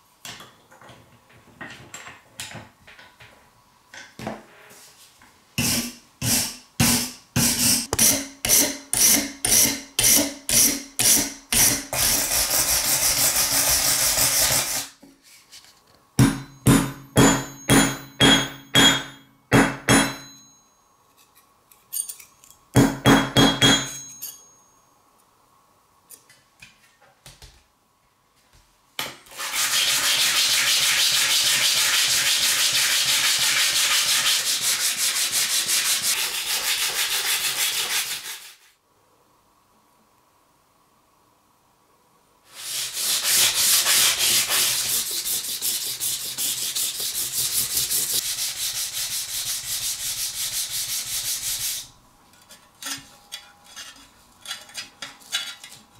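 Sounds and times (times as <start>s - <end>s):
hand sanding blade on sandpaper: 9.6s - 14.9s, 29.4s - 38.7s, 42.5s - 51.9s
wire brush scrubbing metal: 42.5s - 55.7s.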